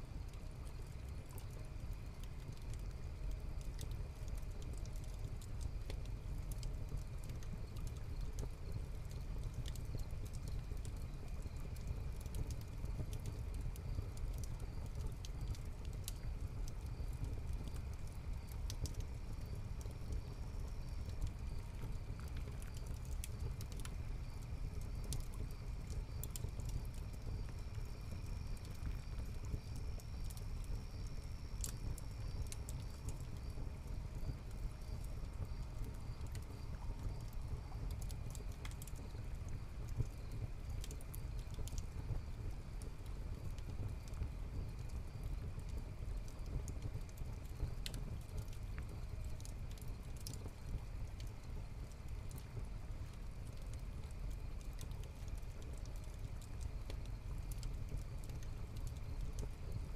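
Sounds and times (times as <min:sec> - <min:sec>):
wood fire crackling and popping: 0:00.0 - 0:59.9
crickets chirping: 0:24.0 - 0:42.7.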